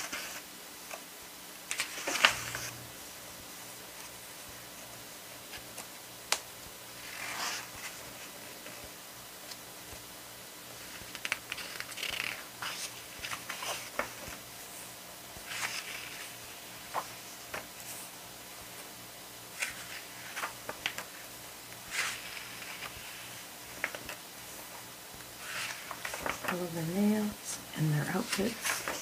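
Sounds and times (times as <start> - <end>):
pages turning: 0.0 - 1.0, 1.6 - 2.9, 5.4 - 10.0, 10.7 - 14.5, 15.4 - 18.9, 19.5 - 27.4, 28.0 - 29.0.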